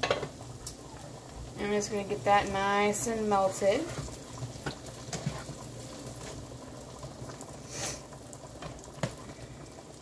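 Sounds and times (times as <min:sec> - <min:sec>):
butter sizzling in a skillet: 0:00.0 - 0:10.0
pot of potatoes boiling: 0:00.0 - 0:10.0.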